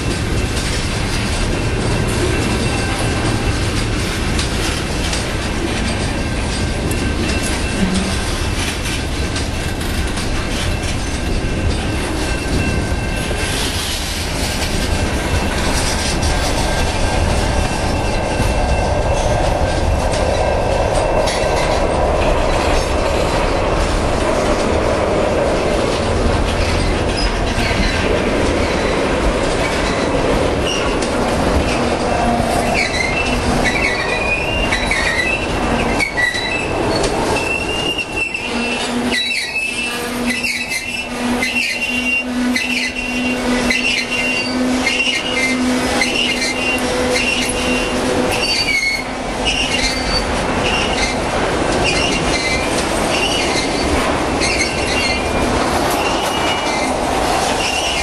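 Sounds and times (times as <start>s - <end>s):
train wheels rumbling on rail: 0.0s - 58.0s
wheels clicking over rail joints: 0.0s - 58.0s
high-pitched wheel squeal: 32.2s - 51.2s, 51.8s - 55.4s.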